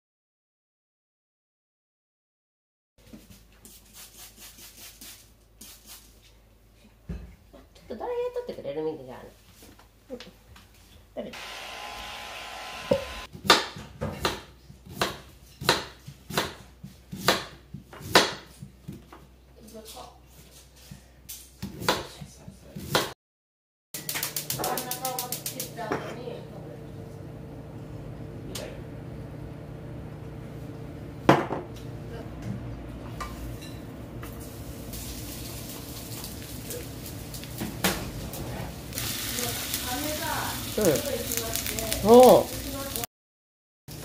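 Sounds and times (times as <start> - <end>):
knife chopping on plastic board: 13.4 - 18.6
oil sizzling in frying pan: 24.0 - 25.9, 34.2 - 43.1.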